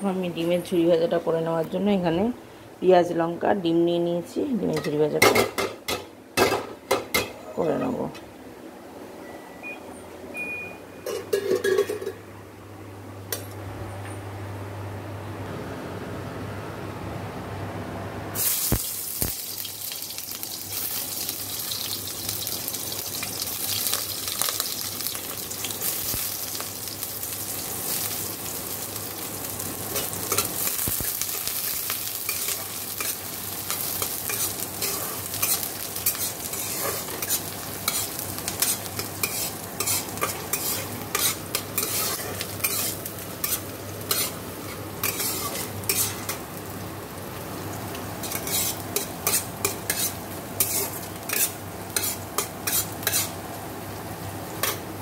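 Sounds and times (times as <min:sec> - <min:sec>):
onion sizzling in hot oil: 0:18.4 - 0:55.0
spatula scraping a pan: 0:34.3 - 0:46.4, 0:48.2 - 0:53.4.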